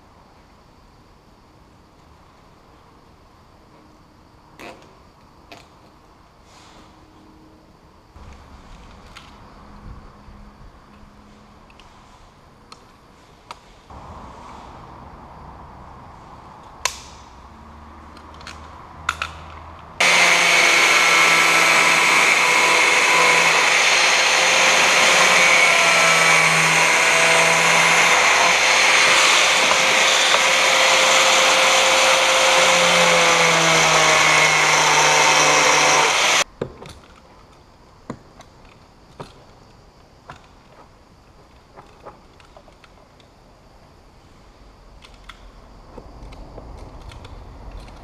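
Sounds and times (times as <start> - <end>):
angle grinder cutting plastic: 20.0 - 36.4.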